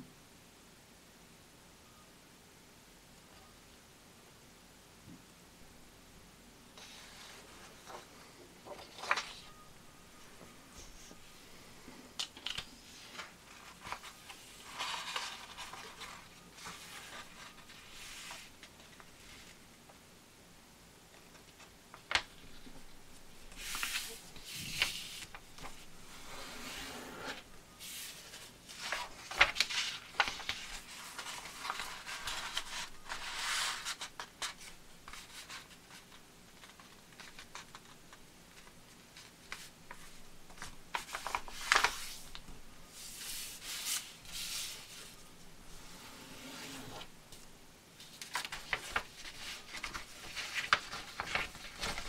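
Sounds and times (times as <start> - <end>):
paper rustling and sliding: 6.8 - 9.6, 12.4 - 19.6, 23.5 - 37.9, 38.6 - 47.4, 48.0 - 52.0.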